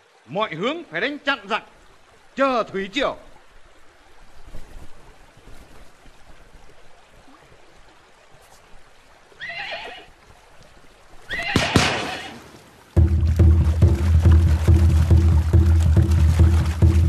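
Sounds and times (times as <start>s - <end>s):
horse whinnying: 9.4s - 10.1s, 11.3s - 12.4s.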